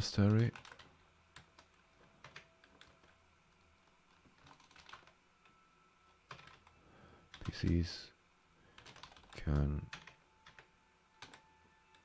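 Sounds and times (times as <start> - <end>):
faint keystrokes on keyboard: 0.2 - 5.6, 8.8 - 12.0.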